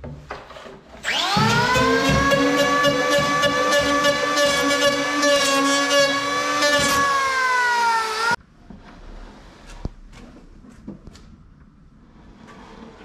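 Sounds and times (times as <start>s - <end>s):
electric planer whining: 1.0s - 8.4s.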